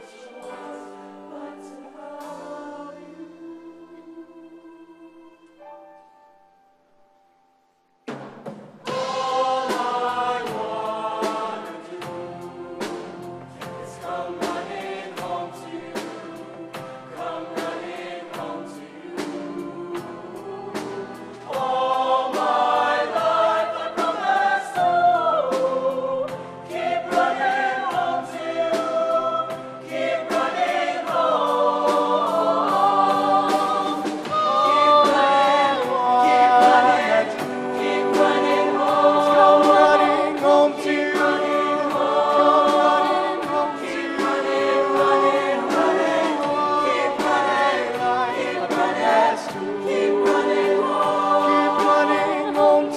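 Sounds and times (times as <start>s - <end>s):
choir singing: 0.0s - 5.6s, 8.8s - 52.9s
steady drum beat: 8.1s - 52.9s
live band playing: 32.1s - 41.4s.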